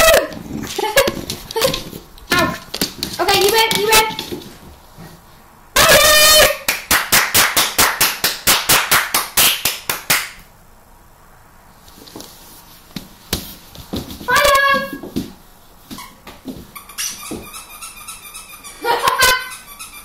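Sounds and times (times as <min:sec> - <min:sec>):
sharp clap-like strikes: 0:06.6 - 0:10.5.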